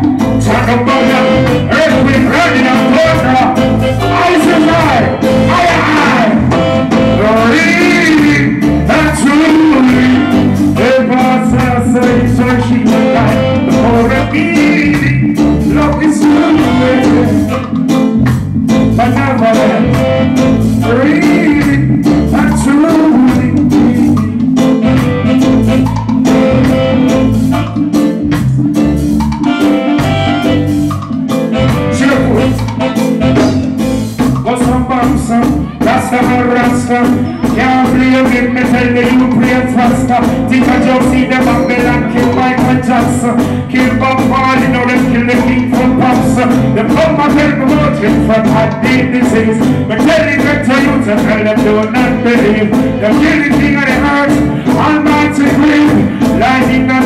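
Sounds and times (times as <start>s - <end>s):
man singing into microphone: 0.0s - 25.6s, 31.5s - 33.6s, 34.3s - 57.0s
bass: 0.0s - 57.0s
drums: 0.0s - 57.0s
keyboards: 0.0s - 57.0s
reggae band playing: 0.0s - 57.0s.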